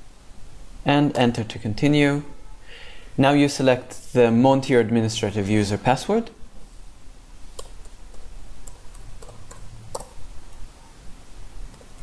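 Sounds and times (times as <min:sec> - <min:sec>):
keystrokes on computer keyboard: 0:07.5 - 0:10.2.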